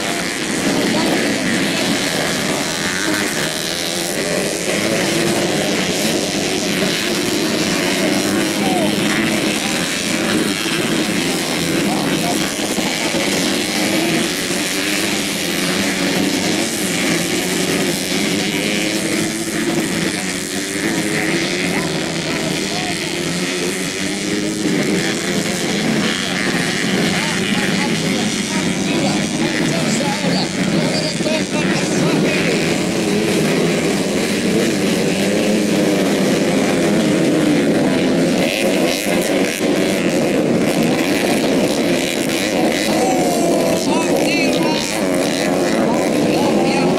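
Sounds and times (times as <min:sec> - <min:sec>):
racing motorcycles revving: 0:00.0 - 0:46.9.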